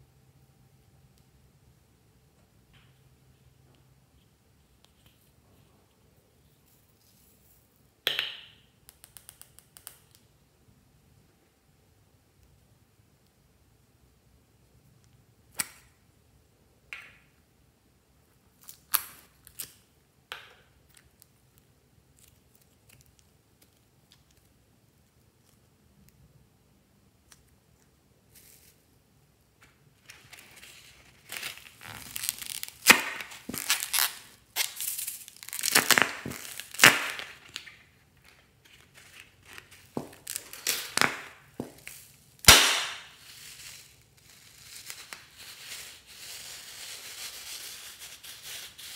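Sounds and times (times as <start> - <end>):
plastic clicks and snaps: 8.2 - 10.3
plastic packaging crinkling: 30.0 - 44.0.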